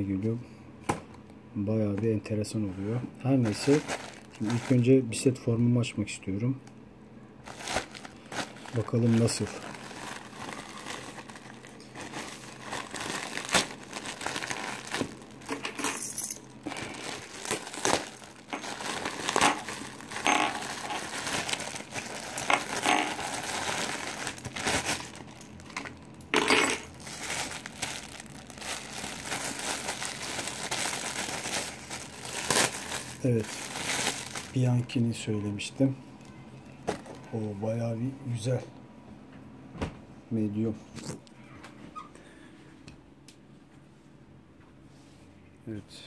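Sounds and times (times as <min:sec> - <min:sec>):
plastic bags crinkling: 0:03.4 - 0:05.1, 0:07.4 - 0:35.2, 0:36.7 - 0:37.4.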